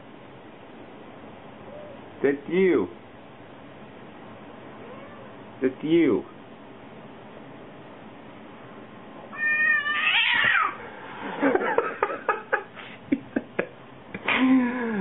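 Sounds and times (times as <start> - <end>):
cat meowing and crying: 4.8 - 5.4, 9.3 - 10.8.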